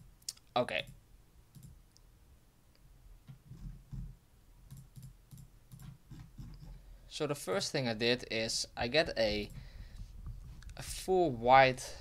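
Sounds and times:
computer mouse clicks: 0:00.2 - 0:02.1, 0:04.7 - 0:06.6.

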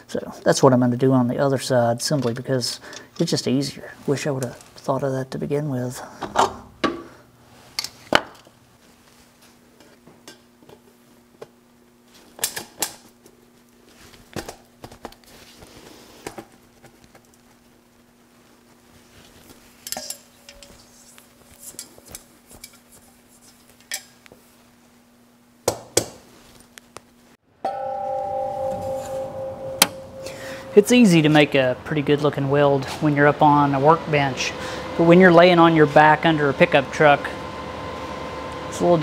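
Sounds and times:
metal pipe fittings clinking: 0:19.8 - 0:20.9.

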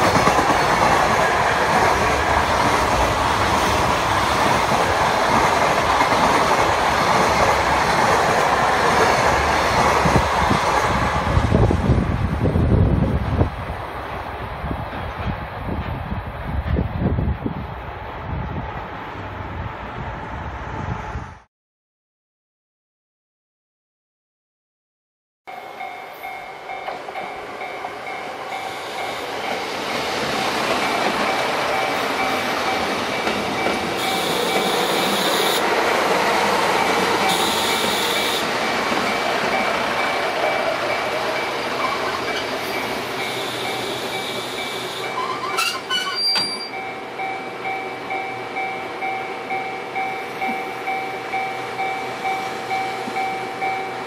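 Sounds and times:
diesel train passing: 0:00.0 - 0:21.5, 0:25.5 - 0:54.0
wheels clacking over rail joints: 0:29.0 - 0:46.8.

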